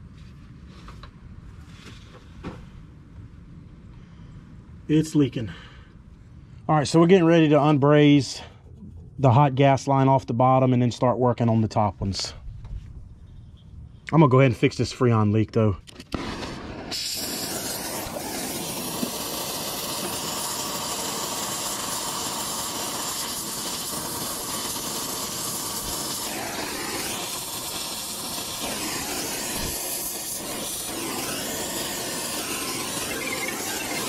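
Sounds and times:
torch flame hissing: 0:16.1 - 0:34.0.

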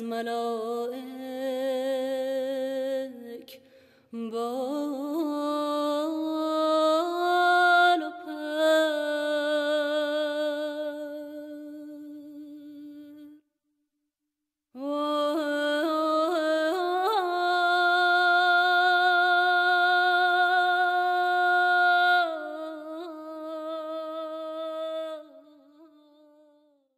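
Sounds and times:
solo voice singing unaccompanied: 0:14.8 - 0:26.6.

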